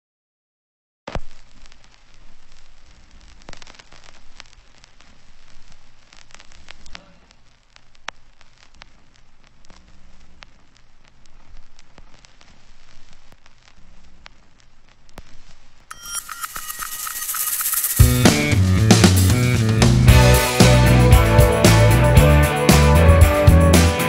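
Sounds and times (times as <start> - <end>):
steady hiss: 1.1 - 23.6
scattered clicks: 15.9 - 18.4.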